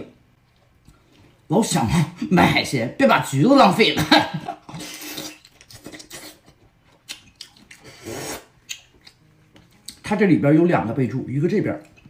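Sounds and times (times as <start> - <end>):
wet slurping from shellfish: 4.7 - 6.6, 7.6 - 8.6
wet mouth clicks: 4.8 - 10.0.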